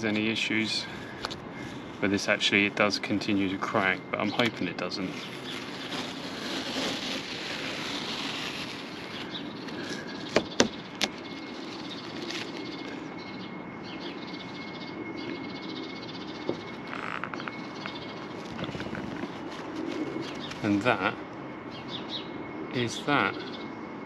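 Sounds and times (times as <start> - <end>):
paper towel crumpling: 4.4 - 10.4
masking tape peeling: 4.5 - 12.9.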